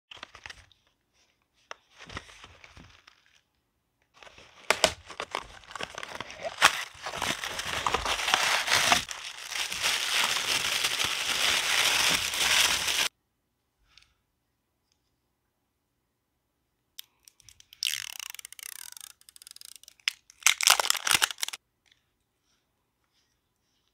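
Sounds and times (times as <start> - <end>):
tissue paper crinkling: 4.2 - 13.1.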